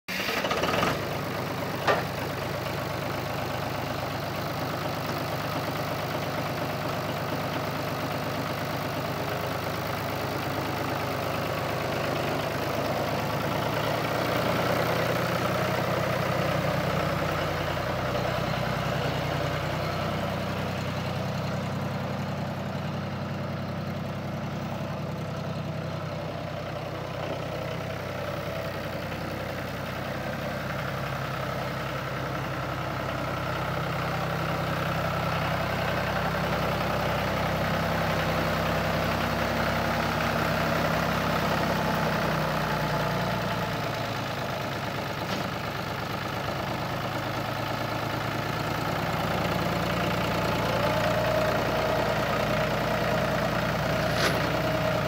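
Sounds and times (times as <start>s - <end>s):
tractor diesel engine running: 0.1s - 55.0s.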